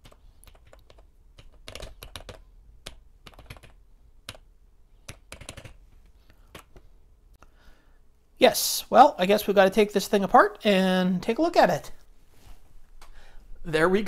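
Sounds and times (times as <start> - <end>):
keyboard keys clicking: 0.0 - 4.4, 5.0 - 5.8.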